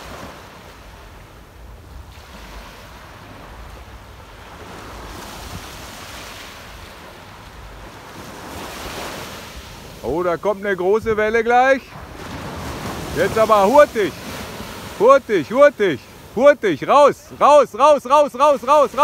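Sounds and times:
wind rumbling on microphone: 0.0s - 10.2s
small waves breaking on sand: 0.0s - 19.0s.

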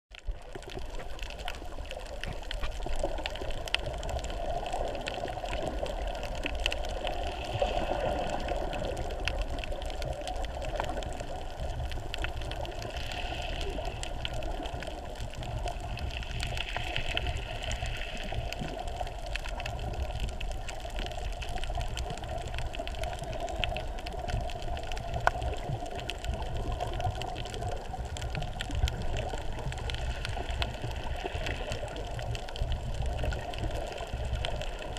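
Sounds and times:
muffled underwater rush: 0.1s - 34.9s
small clicks underwater: 0.1s - 34.9s.

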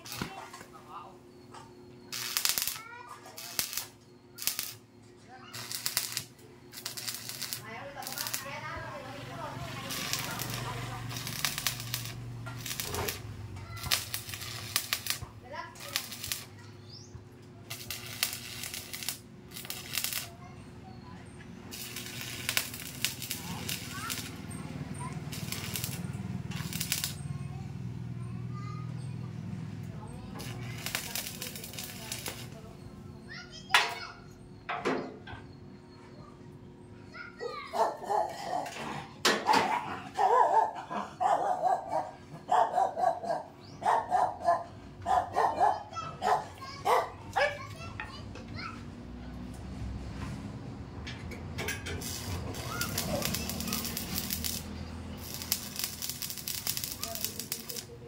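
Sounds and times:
welding arc crackling: 0.0s - 0.4s, 2.1s - 20.4s, 21.6s - 28.0s, 29.8s - 32.8s, 51.6s - 58.0s
dog barking: 37.6s - 47.8s.

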